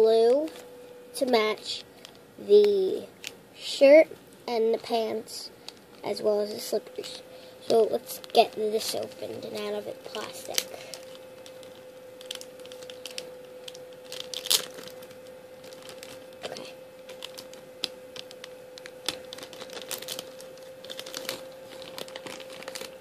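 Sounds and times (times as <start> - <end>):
faint steady hum: 0.0 - 23.0
plastic packaging crinkling and tearing: 7.7 - 23.0.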